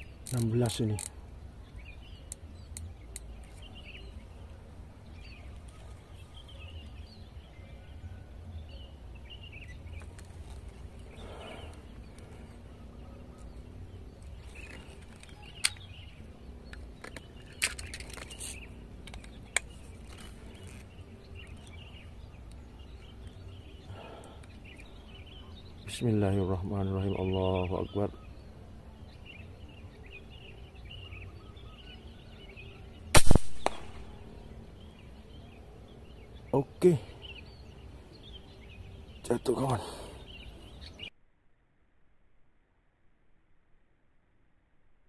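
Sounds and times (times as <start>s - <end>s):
small birds chirping: 0.0s - 41.1s
sharp clicks: 33.2s - 34.1s.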